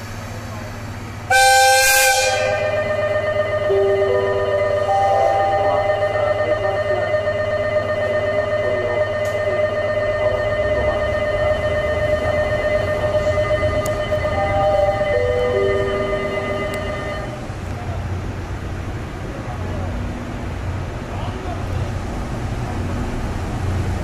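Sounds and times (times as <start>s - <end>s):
electronic alarm tone: 1.4s - 17.5s
low steady hum: 2.4s - 17.8s.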